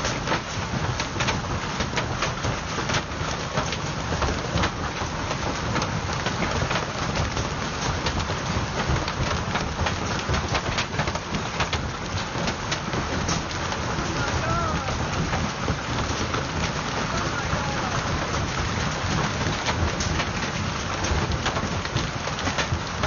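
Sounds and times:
hail striking ground and car: 0.0 - 23.0.

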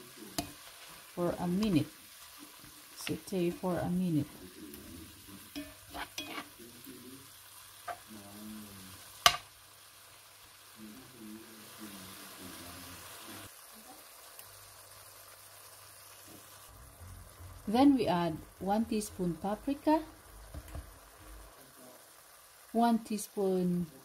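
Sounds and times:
food sizzling in oil: 0.0 - 24.0
spatula scraping a pan: 5.5 - 6.6
sharp knock on a pan: 9.2 - 9.5.

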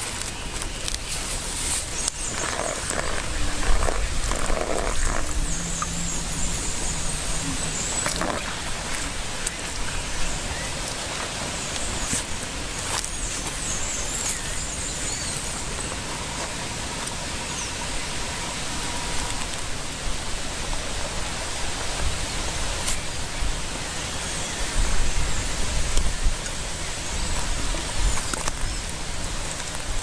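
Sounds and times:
outdoor background hiss: 0.0 - 30.0
low rumbling bumps: 2.0 - 16.9.

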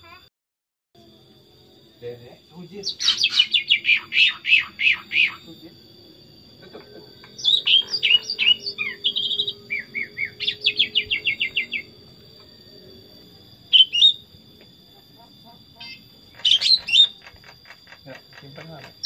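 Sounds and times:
bird singing chirping whistles: 2.8 - 5.5, 7.3 - 12.0, 12.6 - 14.3, 16.4 - 17.2.

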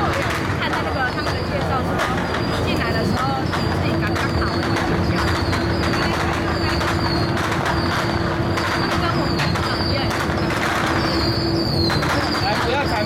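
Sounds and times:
ferry engine droning: 0.0 - 13.0
murmur of voices: 0.0 - 13.0.

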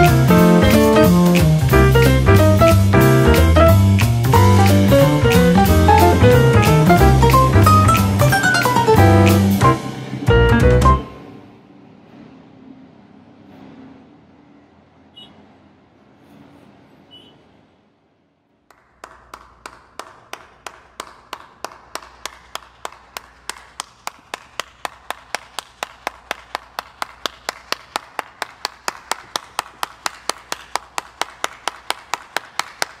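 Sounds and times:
person clapping: 0.0 - 9.8, 18.6 - 33.0.

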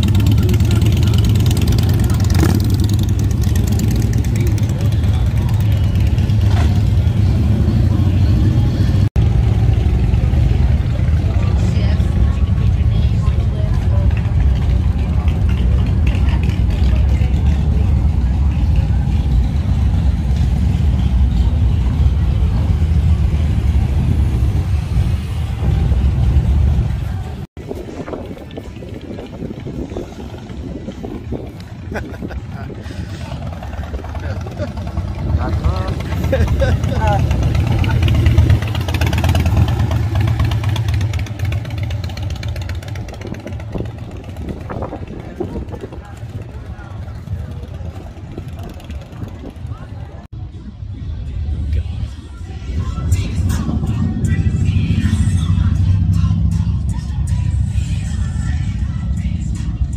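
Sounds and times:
crowd voices: 0.0 - 59.9
motorcycle engines rumbling: 0.0 - 59.9
street noise: 0.0 - 59.9
wind on microphone: 23.8 - 34.4, 42.8 - 50.8.

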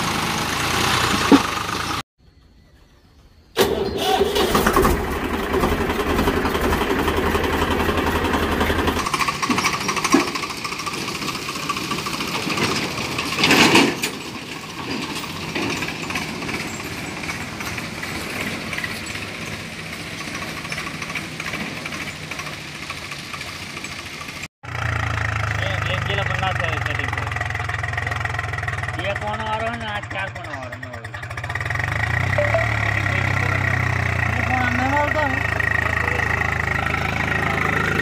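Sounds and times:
diesel tractor engine chugging: 0.0 - 2.0, 3.6 - 38.0.

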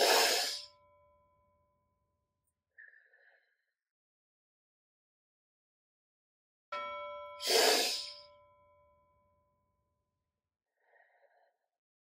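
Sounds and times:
deep breath: 7.4 - 8.3, 10.8 - 11.7.

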